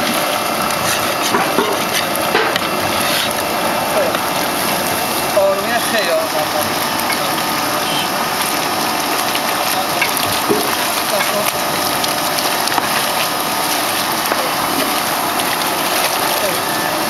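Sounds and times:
plaster mixer churning slurry: 0.0s - 17.0s.

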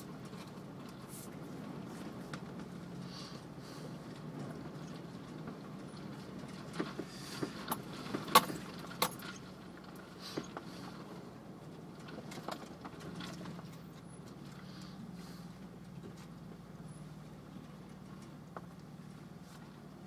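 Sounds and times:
vehicle engine running: 0.0s - 20.0s
clicks and rattles in cab: 4.0s - 15.0s.

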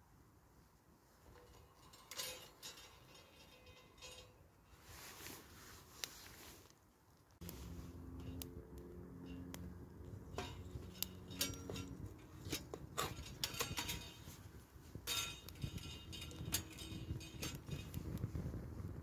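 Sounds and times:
wood fire crackling and popping: 5.4s - 19.0s.

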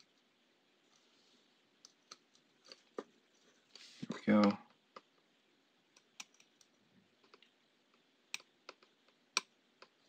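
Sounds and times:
tweezers clicking on circuit board: 5.9s - 6.7s, 8.3s - 10.0s.

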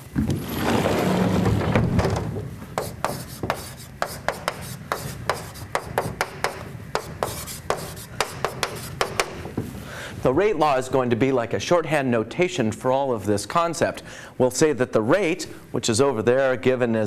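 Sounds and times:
chalk writing on chalkboard: 2.8s - 9.4s.

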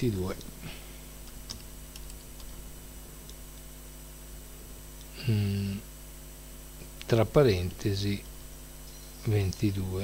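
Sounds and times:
faint steady hum: 0.0s - 10.0s
man's hesitation sound: 5.0s - 5.9s.

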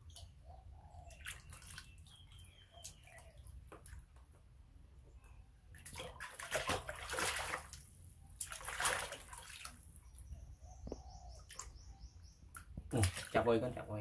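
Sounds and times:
water splashing in plastic basin: 1.1s - 4.2s, 5.7s - 10.0s, 12.6s - 13.7s.

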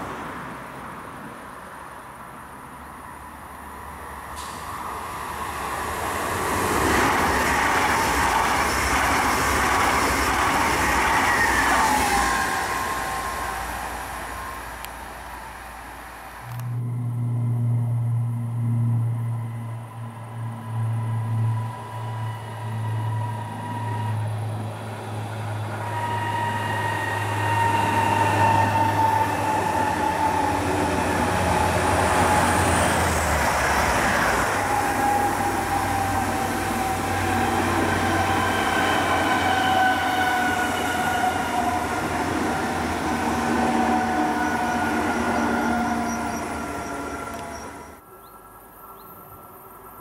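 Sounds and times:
electric train passing: 0.0s - 50.0s
train whine falling in pitch: 4.4s - 14.9s, 16.4s - 48.0s.

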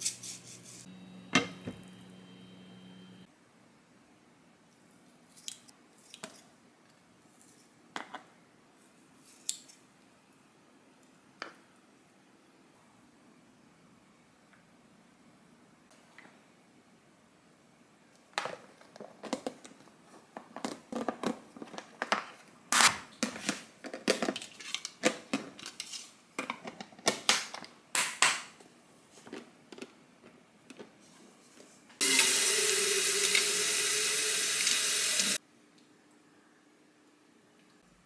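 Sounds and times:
water tap running: 32.0s - 35.4s.

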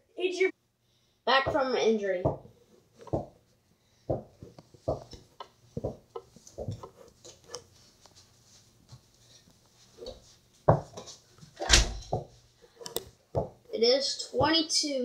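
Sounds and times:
basketball thumps and knocks: 1.4s - 3.4s, 4.1s - 6.9s, 10.7s - 11.0s, 11.7s - 12.3s, 13.3s - 13.6s.

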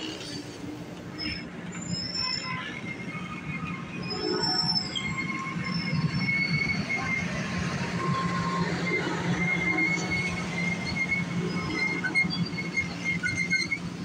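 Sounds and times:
train wheels rumbling on rail: 0.0s - 14.0s
wheels squealing: 0.0s - 14.0s.

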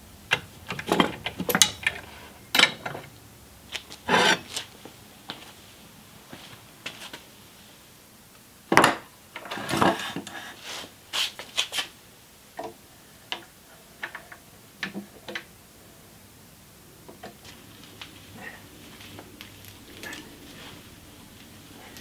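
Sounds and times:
metal scraping across wood: 4.0s - 4.6s.

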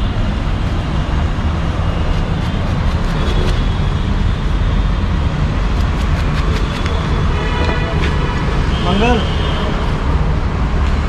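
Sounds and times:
low street rumble: 0.0s - 11.0s
knife slicing watermelon: 5.7s - 7.0s.

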